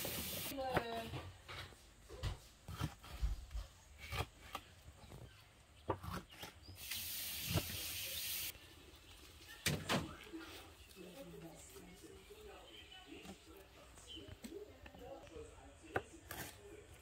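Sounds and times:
steady hiss: 0.0 - 0.5.

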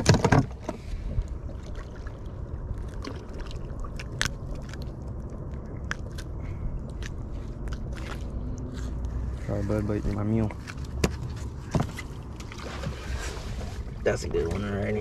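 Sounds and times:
steady low rumble: 0.0 - 15.0
hands handling fish clicks and scrapes: 4.0 - 12.3.

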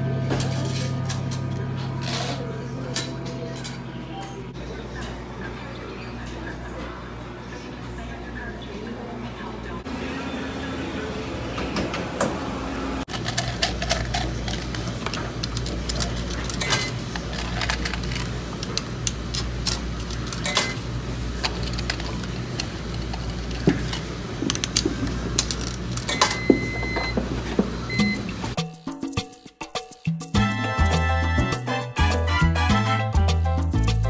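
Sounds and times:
laundry machines humming: 0.0 - 28.6
coins dropping into slot: 2.0 - 2.4, 13.1 - 20.8, 21.4 - 27.2.

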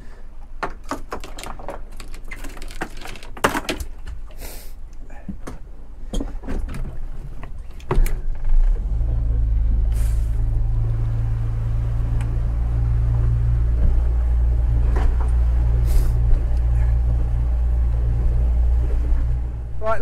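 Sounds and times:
clicks and knocks: 0.6 - 4.2
boat engine starting and running: 3.9 - 20.0.

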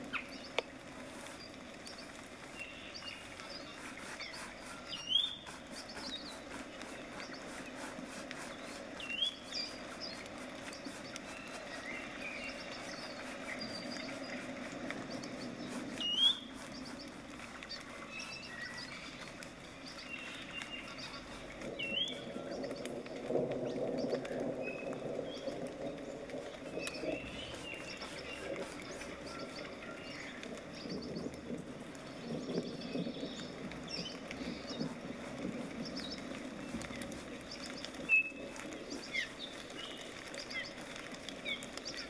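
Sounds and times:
birds chirping: 0.0 - 42.0
bristle brush stroking canvas: 0.7 - 21.8, 25.9 - 30.6, 34.0 - 41.1.

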